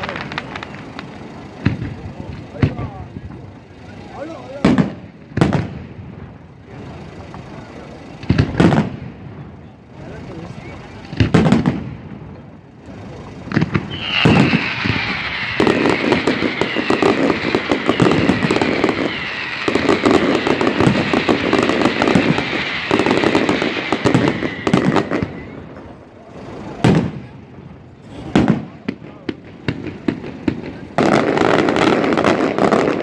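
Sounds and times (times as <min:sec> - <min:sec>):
fireworks whistles sliding down: 0:00.0 - 0:02.9, 0:12.8 - 0:27.2
fireworks bangs and crackling: 0:00.0 - 0:33.0.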